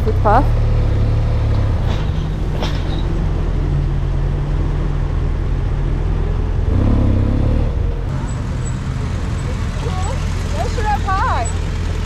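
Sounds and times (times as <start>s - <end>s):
road noise: 0.0s - 12.0s
motorcycle engine running: 6.0s - 12.0s.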